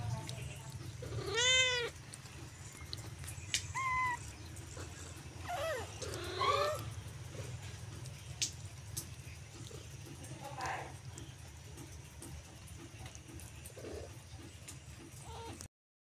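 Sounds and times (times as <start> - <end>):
steady low hum: 0.0 - 15.7
cats meowing: 0.7 - 7.6, 15.0 - 15.7.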